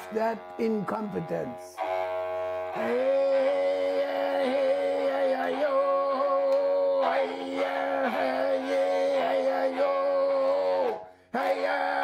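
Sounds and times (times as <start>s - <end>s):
bowed horn fiddle note: 0.0s - 12.0s.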